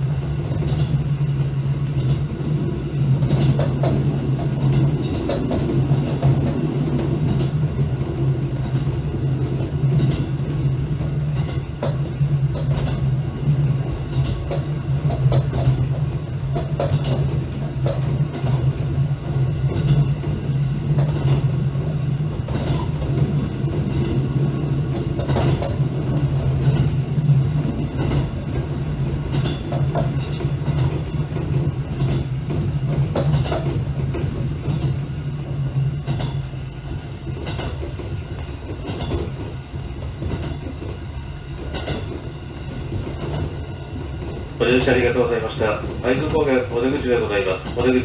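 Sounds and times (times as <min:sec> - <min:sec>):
train running gear hum: 0:00.0 - 0:48.0
wheels clacking over rail joints: 0:00.0 - 0:48.0.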